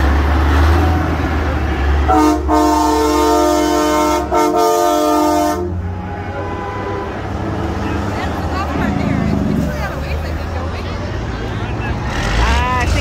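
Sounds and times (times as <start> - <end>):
diesel engine hum passing: 0.0 - 13.0
truck air horn chord: 2.1 - 7.2.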